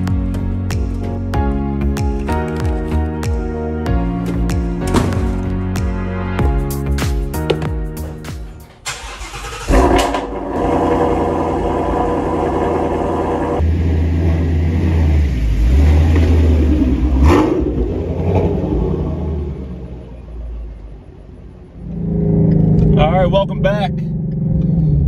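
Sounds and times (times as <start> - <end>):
car engine starting: 7.4 - 25.0
car engine idling low: 8.5 - 18.0.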